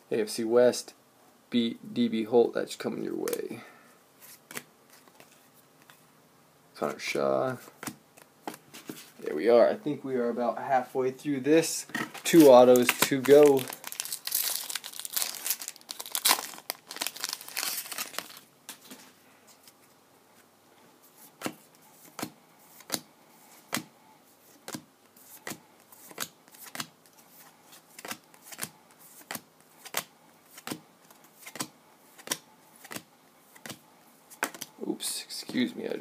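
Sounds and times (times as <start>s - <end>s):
foil wrapper tearing and crinkling: 12.2s - 18.5s.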